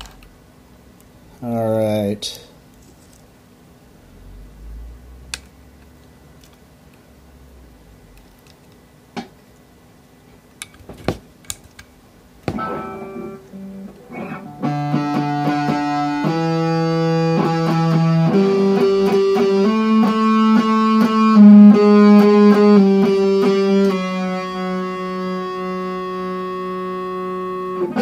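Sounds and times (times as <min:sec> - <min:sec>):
distorted electric guitar: 0:12.5 - 0:28.0.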